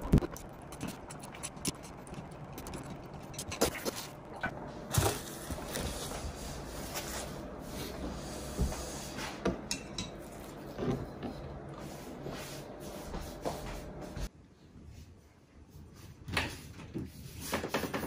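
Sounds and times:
tableware clinking: 0:09.7 - 0:10.3.

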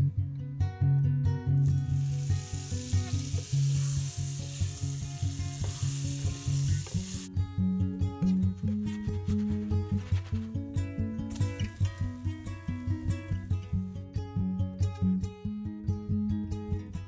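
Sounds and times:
acoustic guitar music: 0:00.0 - 0:17.0
butter sizzling in a frying pan: 0:01.6 - 0:07.3, 0:11.3 - 0:14.0.

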